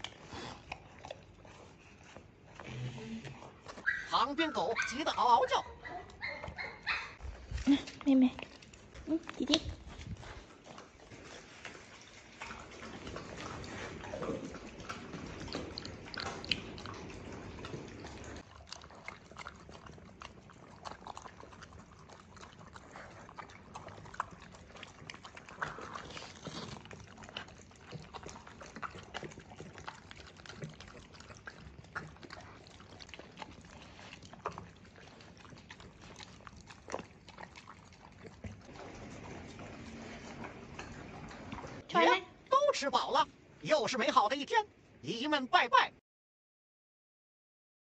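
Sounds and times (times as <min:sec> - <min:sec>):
dogs lapping wet food: 0:00.0 - 0:45.0
tongues clicking on plastic: 0:07.7 - 0:41.8.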